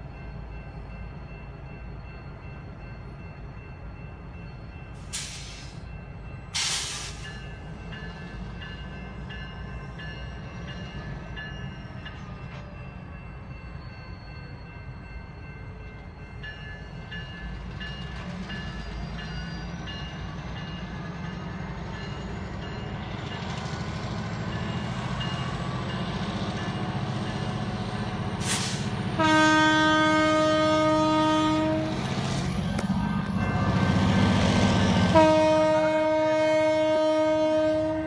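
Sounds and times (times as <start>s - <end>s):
diesel locomotive engine rumble: 0.0s - 38.0s
locomotive air horn blast: 28.4s - 32.1s, 35.0s - 38.0s.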